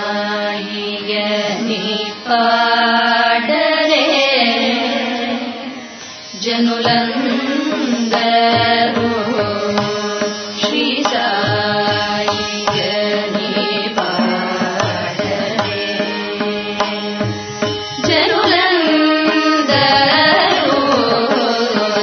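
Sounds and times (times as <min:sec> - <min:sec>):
person singing: 0:06.4 - 0:22.0.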